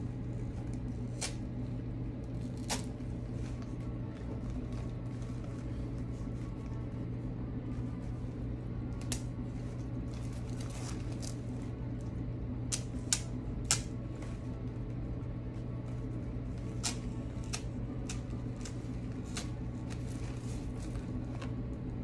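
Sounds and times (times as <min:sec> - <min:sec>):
steady low hum: 0:00.0 - 0:22.0
clicks and snaps of artificial stems: 0:02.3 - 0:03.0, 0:09.0 - 0:09.3, 0:12.7 - 0:14.0, 0:16.6 - 0:20.2.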